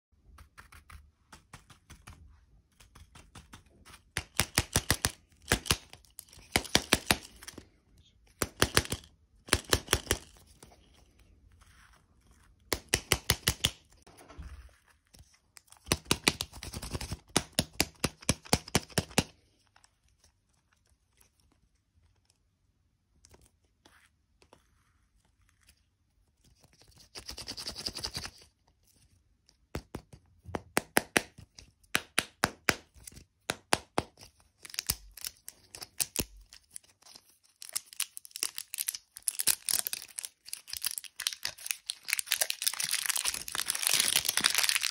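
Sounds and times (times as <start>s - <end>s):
foil wrapper crinkling and tearing: 34.6s - 44.9s.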